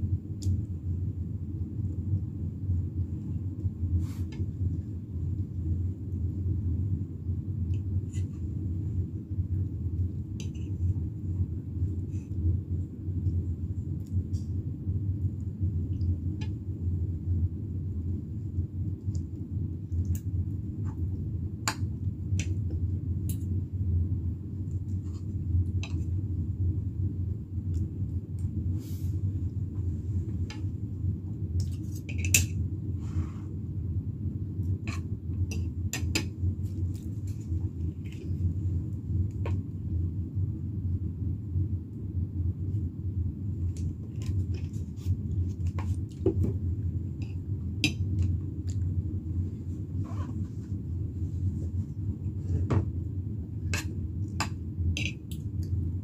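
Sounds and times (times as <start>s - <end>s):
steady low hum: 0.0s - 56.0s.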